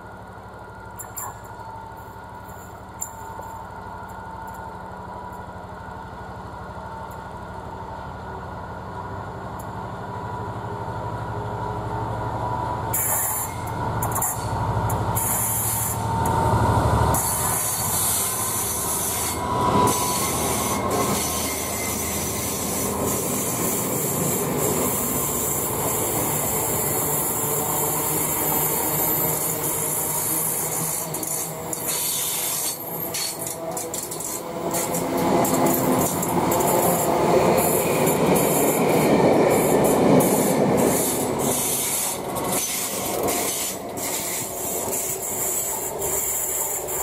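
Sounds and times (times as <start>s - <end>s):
diesel locomotive engine rumble: 0.0s - 47.0s
wheels rushing on rail: 0.0s - 47.0s
wheel squeal: 17.1s - 25.6s, 26.4s - 36.6s.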